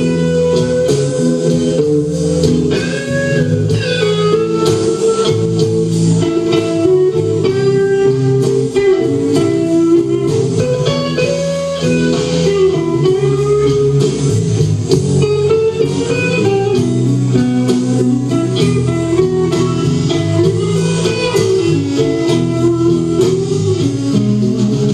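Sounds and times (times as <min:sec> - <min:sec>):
bass: 0:00.0 - 0:24.9
drums with steady beat: 0:00.0 - 0:24.9
electric guitar melody: 0:00.0 - 0:24.9.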